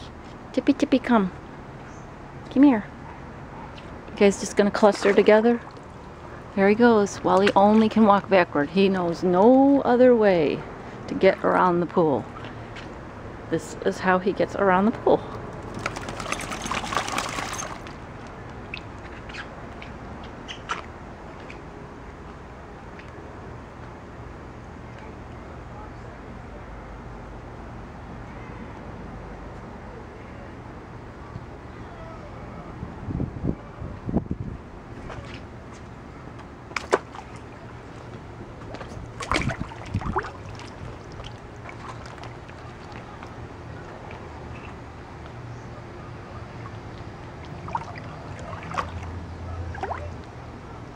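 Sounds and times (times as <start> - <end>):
low steady hum: 0.0 - 50.9
dogs splashing in water: 15.6 - 18.0, 38.6 - 43.4, 46.5 - 50.2.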